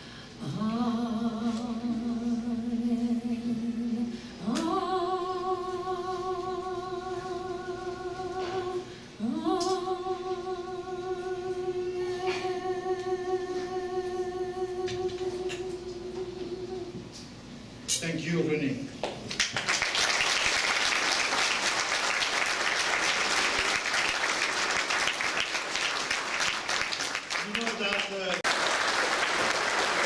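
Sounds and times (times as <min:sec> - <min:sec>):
woman singing into microphone: 0:00.4 - 0:17.2.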